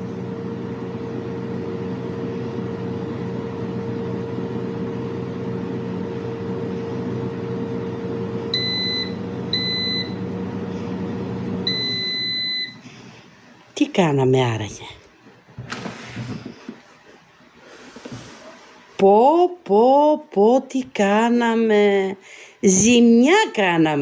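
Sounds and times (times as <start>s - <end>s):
air fryer fan humming: 0.0s - 14.2s
air fryer beeps: 8.4s - 12.8s.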